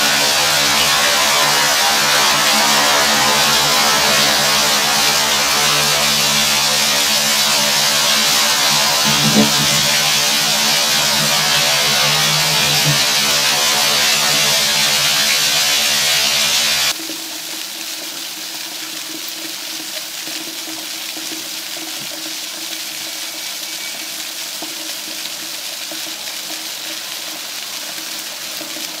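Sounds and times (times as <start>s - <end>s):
loud music with sustained tones: 0.0s - 17.0s
rushing splashing water: 0.0s - 29.0s.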